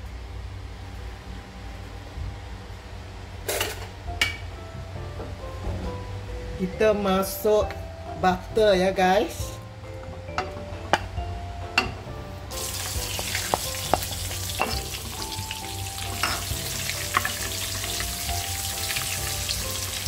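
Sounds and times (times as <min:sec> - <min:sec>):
butter sizzling in oil: 0:12.5 - 0:20.0.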